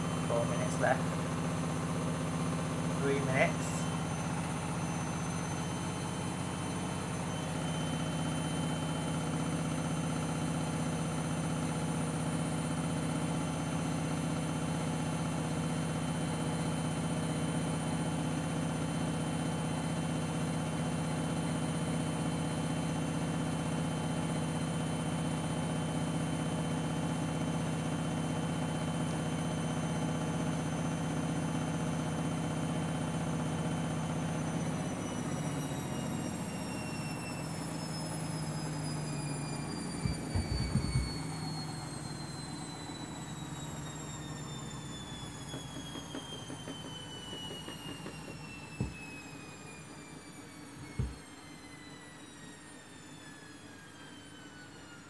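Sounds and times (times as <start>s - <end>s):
washing machine spinning: 0.0s - 55.0s
low thumps: 40.0s - 41.1s.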